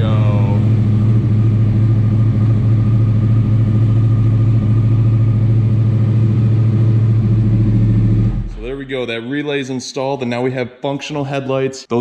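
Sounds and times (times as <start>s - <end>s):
motorcycle engine idling: 0.0s - 8.8s.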